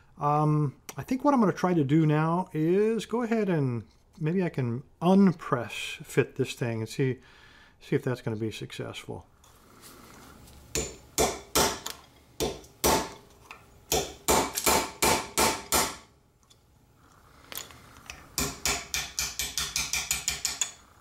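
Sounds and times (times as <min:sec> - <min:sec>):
hammer striking metal punch: 0:10.7 - 0:13.2, 0:13.9 - 0:16.1, 0:18.4 - 0:20.8.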